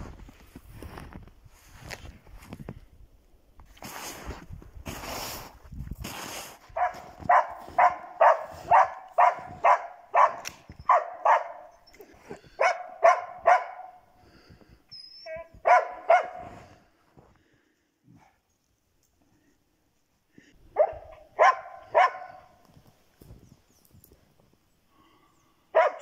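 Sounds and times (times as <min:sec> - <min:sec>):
dogs barking: 0:06.8 - 0:11.8, 0:12.4 - 0:14.0, 0:15.6 - 0:16.6, 0:20.7 - 0:22.6, 0:25.7 - 0:26.0
dog crying: 0:15.1 - 0:16.0.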